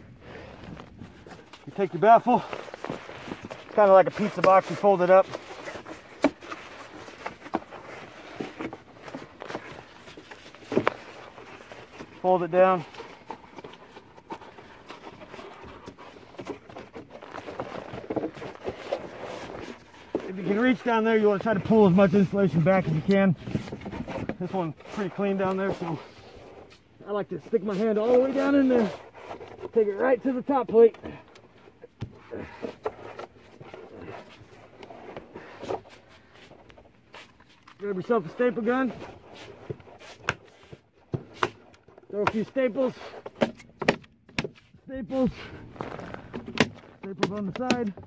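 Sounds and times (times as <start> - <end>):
cardboard scraping and rustling: 0.1 - 48.0.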